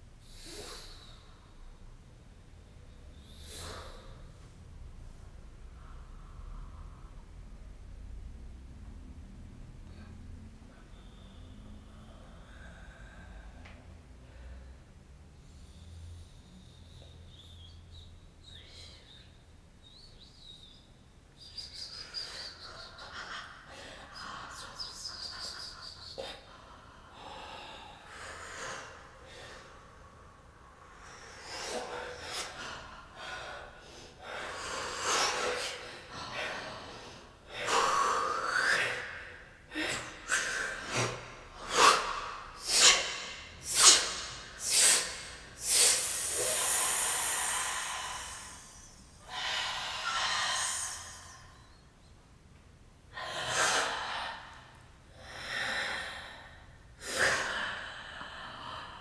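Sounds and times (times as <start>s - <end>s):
woman breathing and gasping: 22.0s - 52.1s, 53.1s - 59.0s.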